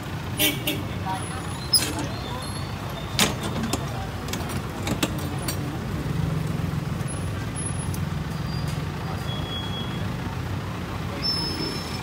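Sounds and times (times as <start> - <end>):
street traffic: 0.0 - 12.0
vehicle engine running: 3.7 - 12.0.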